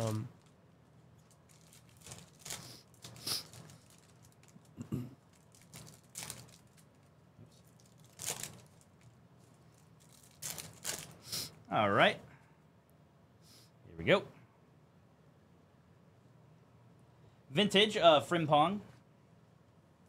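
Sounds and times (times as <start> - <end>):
foil wrapper crinkling and tearing: 0.0 - 11.2.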